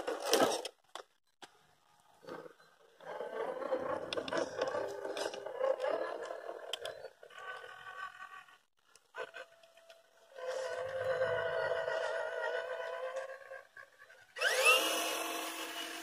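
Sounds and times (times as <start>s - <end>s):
electric motor and gears whining: 9.6s - 16.0s.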